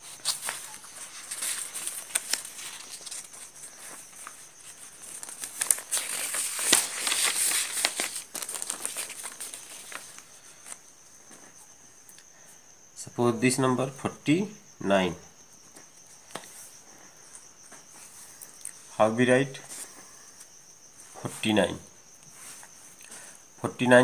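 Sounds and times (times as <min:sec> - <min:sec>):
paper page rustling: 0:00.0 - 0:10.8.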